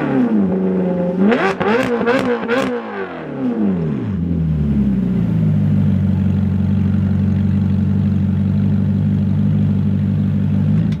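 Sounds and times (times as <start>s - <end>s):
car engine idling: 3.6s - 11.0s.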